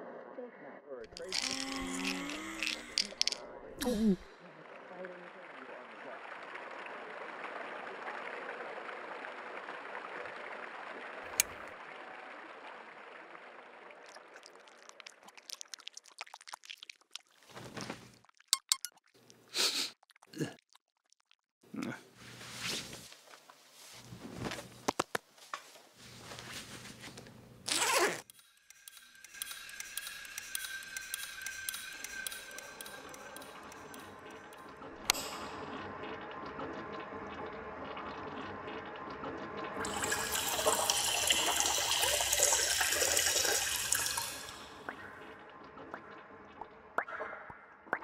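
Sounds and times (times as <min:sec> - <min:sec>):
cloth rustling: 0:17.4 - 0:18.1, 0:22.2 - 0:28.2
toilet flushing: 0:29.2 - 0:47.0.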